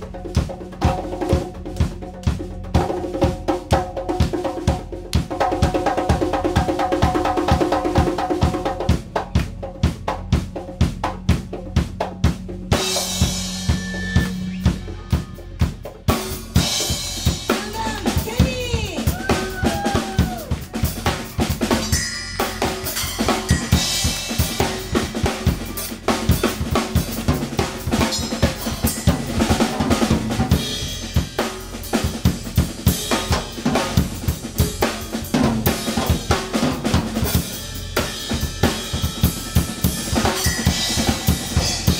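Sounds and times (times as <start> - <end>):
congas playing: 0.0 - 41.9
drum kit groove: 0.0 - 41.9
held bass note: 13.1 - 16.6.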